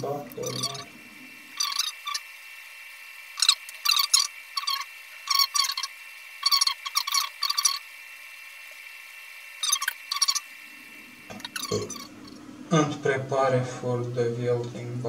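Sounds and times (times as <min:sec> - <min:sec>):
faint steady whine: 0:00.0 - 0:15.0
tool scraping circuit board: 0:00.4 - 0:00.9, 0:01.6 - 0:02.2, 0:03.4 - 0:07.8, 0:11.3 - 0:12.1.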